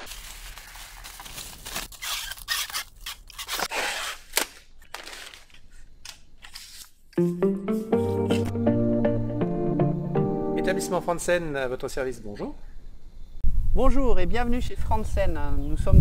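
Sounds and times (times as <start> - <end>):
plastic bag crinkling: 0.0 - 3.7.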